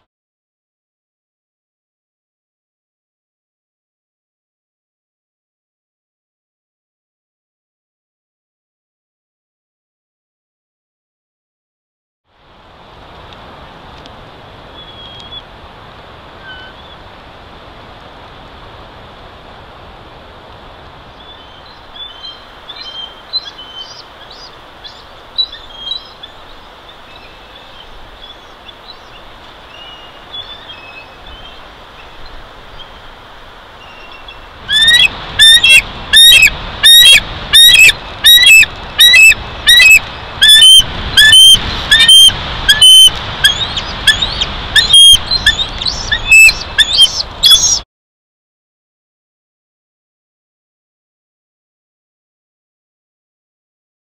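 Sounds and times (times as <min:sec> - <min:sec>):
wind hiss: 0:12.4 - 0:47.8
eagle high chirping calls: 0:14.8 - 0:15.4, 0:16.4 - 0:17.0, 0:21.2 - 0:33.0, 0:33.8 - 0:47.8
faint bird chirps: 0:14.8 - 0:15.5, 0:21.2 - 0:33.0, 0:42.8 - 0:47.8.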